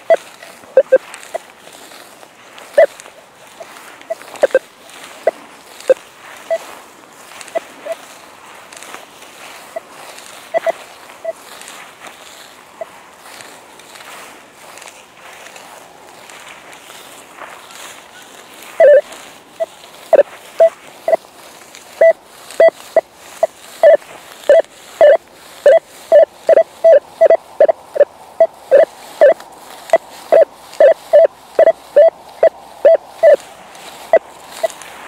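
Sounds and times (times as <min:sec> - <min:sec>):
metal detector short beeps: 0:00.0 - 0:01.4, 0:02.7 - 0:08.1, 0:09.6 - 0:11.5, 0:18.8 - 0:21.3, 0:21.9 - 0:34.8.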